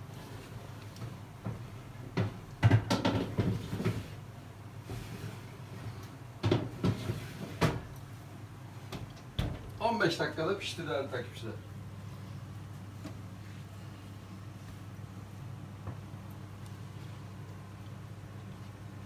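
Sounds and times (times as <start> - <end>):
low steady hum: 0.0 - 19.0
baking tray clattering on rack: 2.1 - 4.1.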